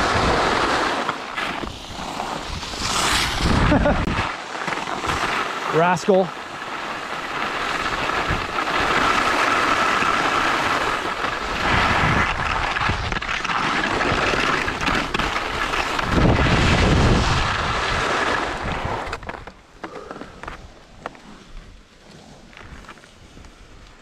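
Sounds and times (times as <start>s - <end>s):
wind rushing over microphone: 0.0s - 1.0s, 1.6s - 4.3s, 7.6s - 19.3s
skis scraping over snow: 0.0s - 24.0s.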